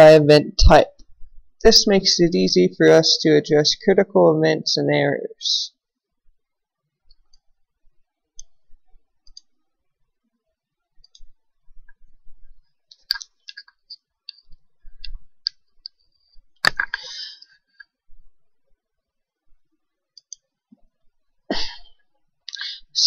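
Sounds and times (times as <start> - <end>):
computer mouse clicks: 8.4 - 8.6, 9.2 - 9.5.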